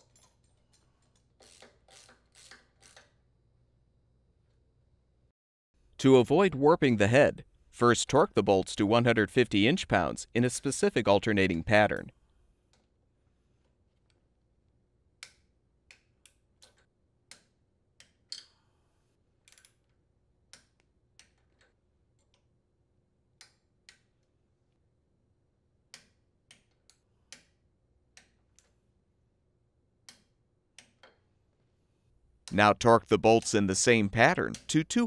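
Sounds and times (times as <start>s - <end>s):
torque wrench clicks: 0.0s - 3.2s.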